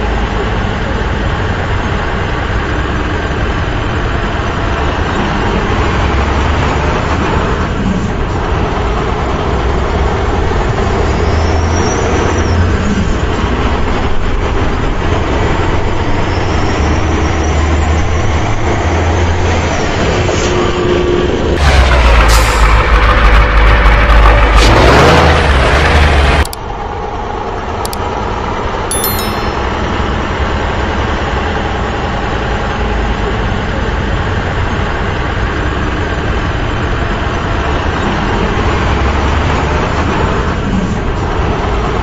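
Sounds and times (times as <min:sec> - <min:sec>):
heavy vehicle engine rumbling: 0:00.0 - 0:28.5.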